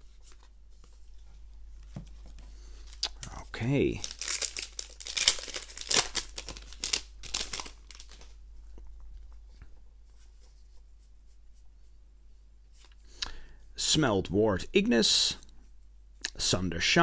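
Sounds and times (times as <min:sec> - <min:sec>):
foil wrapper crinkling and tearing: 0:03.8 - 0:08.4.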